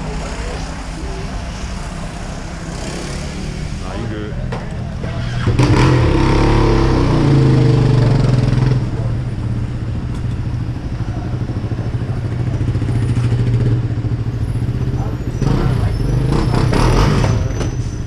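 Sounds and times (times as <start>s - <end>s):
dirt bike engine revving: 1.8s - 4.2s, 5.0s - 9.1s, 14.6s - 17.7s.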